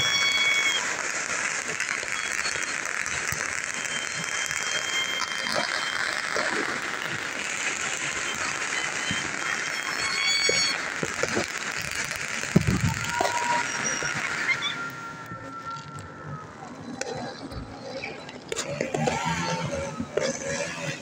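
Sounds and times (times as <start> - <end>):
distant crowd noise: 0.0 - 21.0
traffic: 0.0 - 21.0
thin whistle-like tone: 1.9 - 6.2, 12.6 - 20.0.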